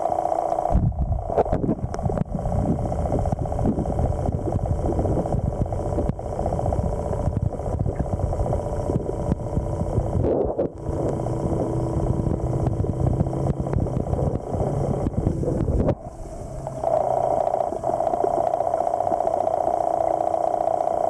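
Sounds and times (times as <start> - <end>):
motor humming underwater: 0.0 - 21.0.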